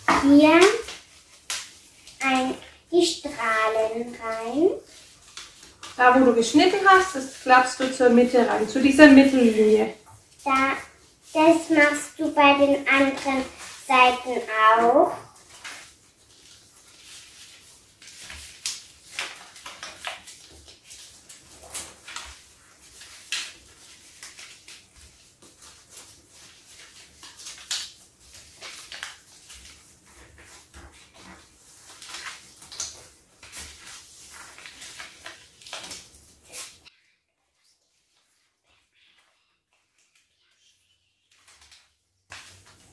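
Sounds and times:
paper rustling and crinkling: 0:00.0 - 0:36.9, 0:37.5 - 0:42.9.

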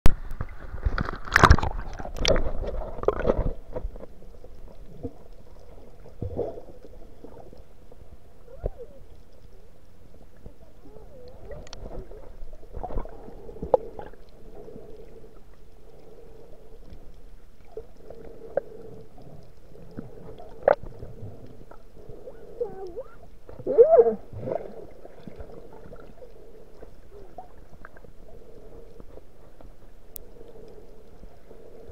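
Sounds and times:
sea water splashing on camera: 0:00.1 - 0:04.1
muffled underwater noise: 0:06.5 - 0:31.9.

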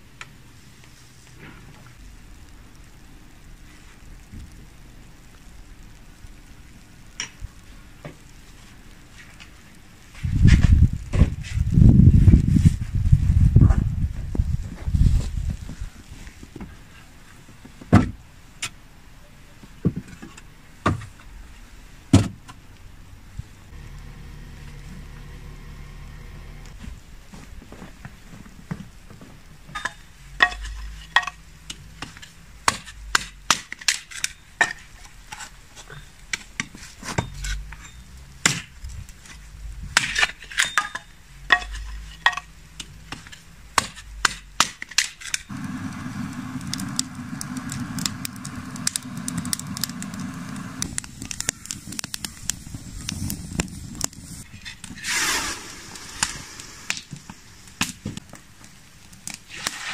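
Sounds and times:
wooden logs knocking and clattering: 0:17.5 - 0:18.2, 0:19.6 - 0:21.3, 0:22.1 - 0:22.6, 0:26.8 - 0:46.0
hiss from hot steaming pot: 0:45.5 - 0:58.2, 0:59.3 - 0:59.9.

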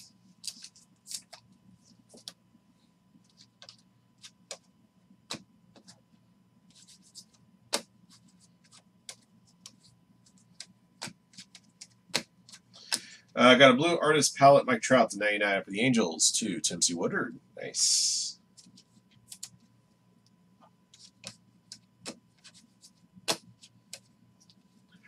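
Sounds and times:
cards flipped by hand: 0:00.4 - 0:01.4, 0:18.6 - 0:19.6, 0:21.0 - 0:24.6.

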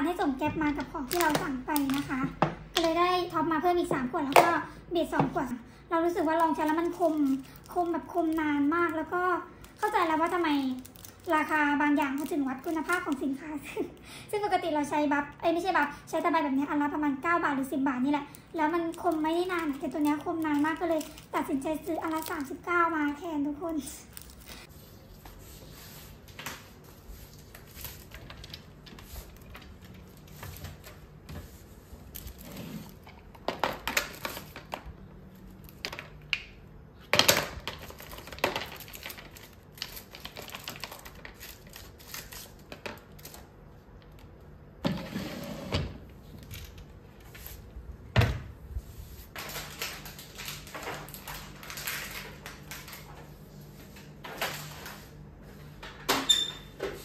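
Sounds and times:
plastic rustling: 0:06.2 - 0:13.4, 0:18.3 - 0:36.2, 0:37.3 - 0:43.6, 0:48.8 - 0:55.2.

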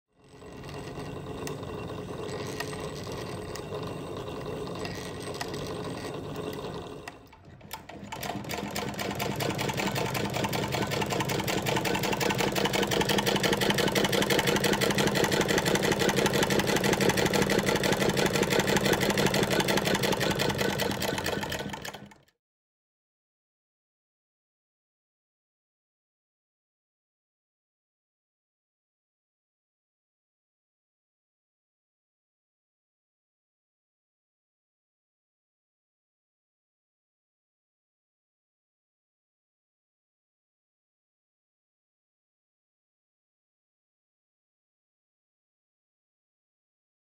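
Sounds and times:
treadle sewing machine clattering: 0:00.2 - 0:22.3.

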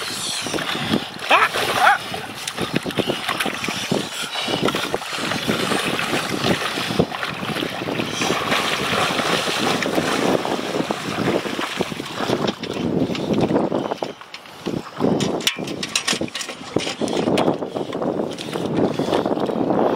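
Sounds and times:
water sloshing around wading legs: 0:00.0 - 0:19.5
wind buffeting microphone: 0:00.0 - 0:19.9.

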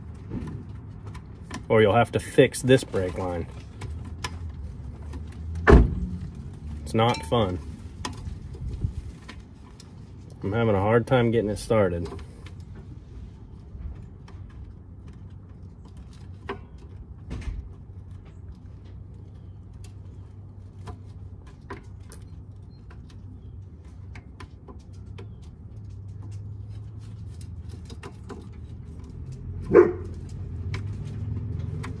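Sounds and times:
small metallic clicks and taps: 0:13.8 - 0:32.0.

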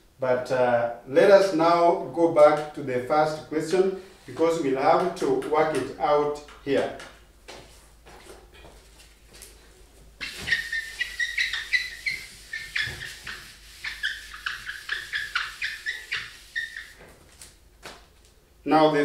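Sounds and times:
eraser squeaking on whiteboard: 0:10.2 - 0:17.4.

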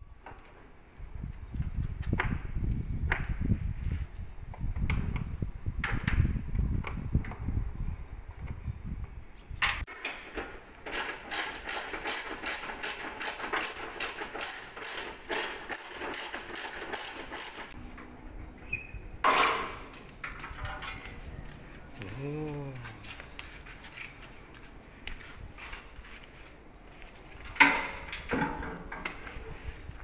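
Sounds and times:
ratchet wrench clicking: 0:10.9 - 0:17.8.

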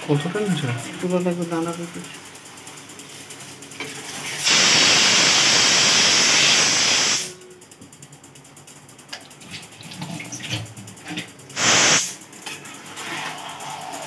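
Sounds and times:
steam hissing: 0:04.4 - 0:07.4, 0:11.6 - 0:12.2.

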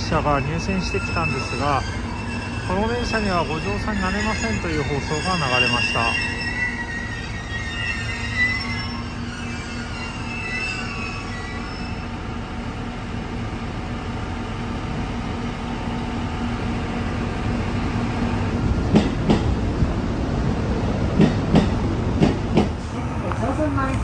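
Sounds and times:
train wheels squealing: 0:00.0 - 0:12.4
train wheels clacking over rail joints: 0:18.8 - 0:19.5, 0:21.1 - 0:22.8.

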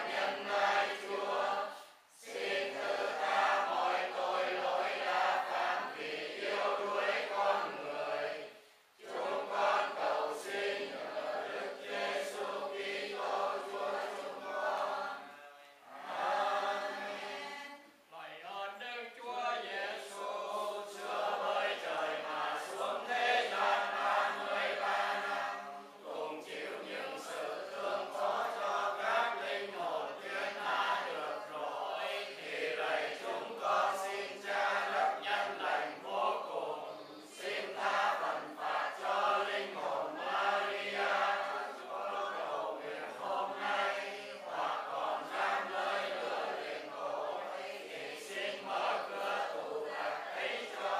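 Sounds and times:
congregation chanting prayers: 0:00.0 - 0:50.9.

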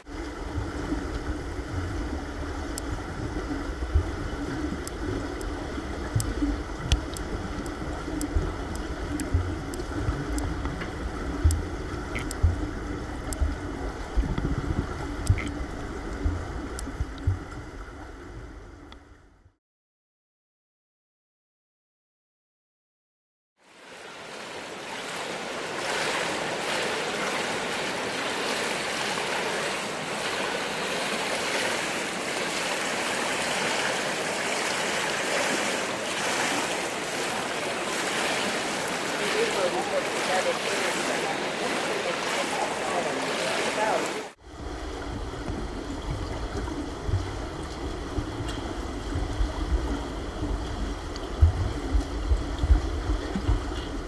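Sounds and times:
underwater low rumble: 0:00.0 - 0:19.6, 0:44.0 - 0:54.0
soft underwater kick thumps: 0:03.1 - 0:04.3, 0:06.0 - 0:15.6, 0:16.2 - 0:17.7, 0:44.9 - 0:54.0
pool water splashing: 0:23.6 - 0:54.0.

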